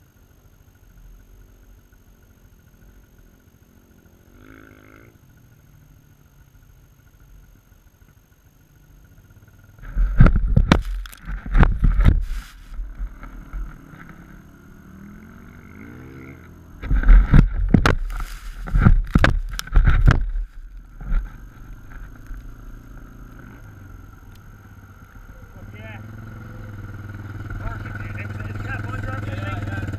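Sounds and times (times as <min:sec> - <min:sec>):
wind rushing over camera: 0:09.8 - 0:13.8, 0:16.8 - 0:22.5
sandboard scraping through sand: 0:11.8 - 0:12.8, 0:18.0 - 0:18.9.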